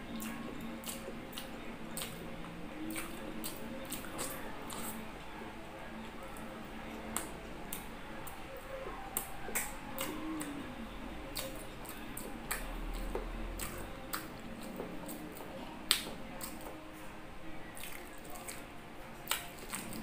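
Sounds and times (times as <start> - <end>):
person chewing food: 0.0 - 5.3, 6.1 - 16.9, 17.7 - 20.0
wet mouth clicks and smacks: 15.9 - 16.7, 19.2 - 20.0.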